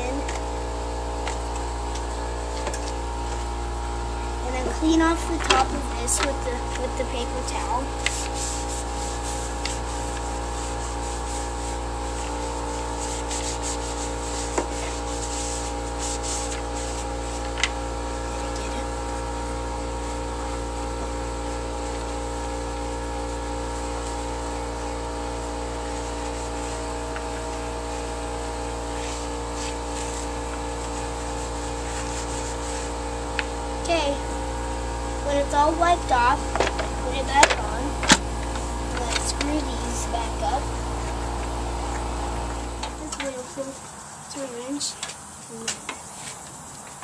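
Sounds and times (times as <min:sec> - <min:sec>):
steady machine drone: 0:00.0 - 0:46.0
steady background hum: 0:00.0 - 0:47.0
paper towel scrubbing plastic: 0:04.4 - 0:34.5, 0:35.3 - 0:42.4.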